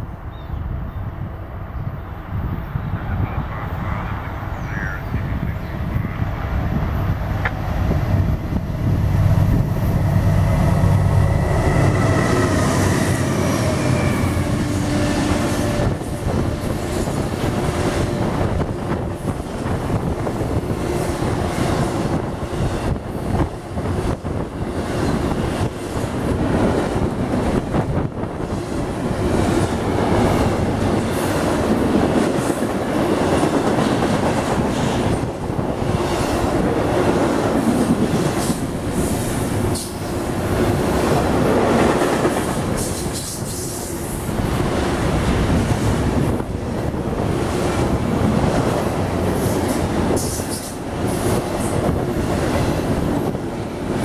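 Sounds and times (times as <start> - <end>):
diesel locomotive rumble: 2.3 - 54.0.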